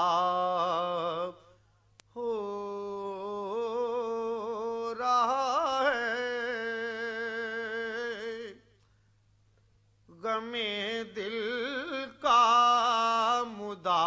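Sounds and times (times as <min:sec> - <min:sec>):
man singing unaccompanied: 0:00.0 - 0:08.7, 0:10.1 - 0:14.0.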